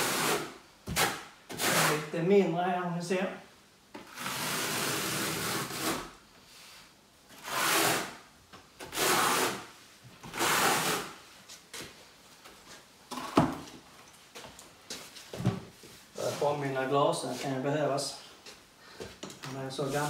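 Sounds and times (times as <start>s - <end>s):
trowel scraping wet adhesive: 0.0s - 2.1s, 7.4s - 8.1s, 8.8s - 9.6s, 10.3s - 11.1s.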